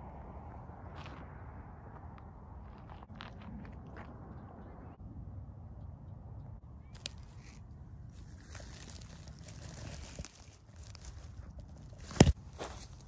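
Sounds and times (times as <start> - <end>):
dry grass crackling and rustling: 6.8 - 13.0.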